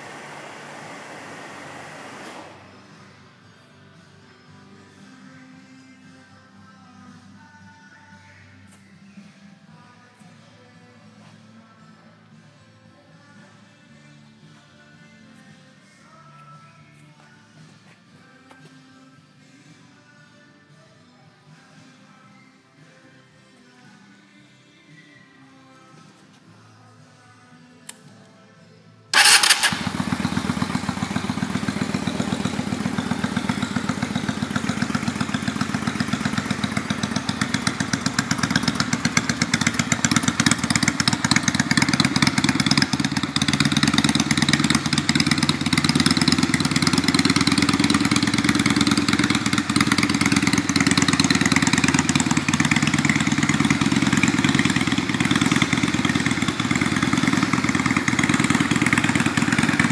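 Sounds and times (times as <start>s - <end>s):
motorcycle engine starting and idling: 0.0s - 3.2s, 29.1s - 59.9s.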